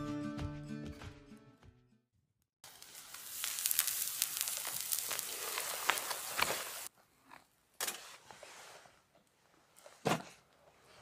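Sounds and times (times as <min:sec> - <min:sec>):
embers crackling and popping: 0:02.6 - 0:06.9
steak sizzling over embers: 0:02.6 - 0:06.9.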